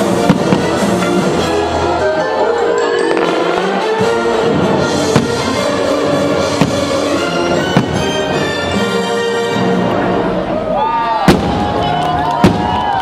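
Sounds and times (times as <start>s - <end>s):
loud music playing: 0.0s - 10.4s.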